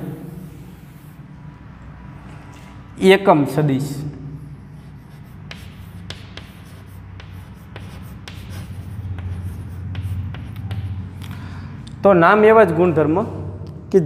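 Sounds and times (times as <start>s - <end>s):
chalk tapping and scratching: 4.4s - 11.4s.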